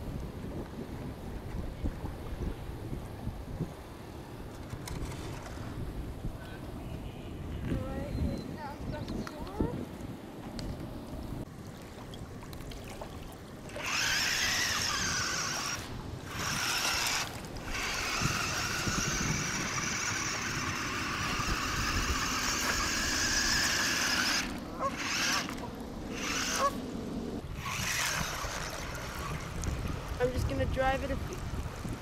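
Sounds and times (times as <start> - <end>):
toy motors whining: 13.8 - 26.8, 27.6 - 29.6.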